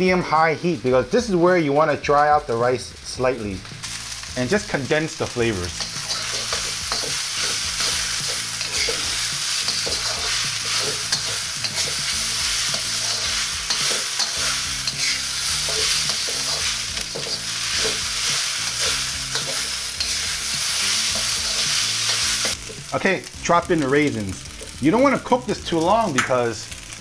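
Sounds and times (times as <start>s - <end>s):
rice sizzling in a wok: 0.0s - 27.0s
metal ladle scraping a wok: 5.8s - 22.9s.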